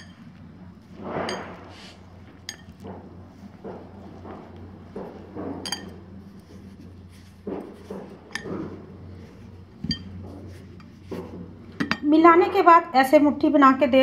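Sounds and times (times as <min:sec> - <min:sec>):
hands rubbing flour in bowl: 0:00.0 - 0:11.8
clinks against glass bowl: 0:02.5 - 0:02.8, 0:05.6 - 0:06.0, 0:09.8 - 0:10.2.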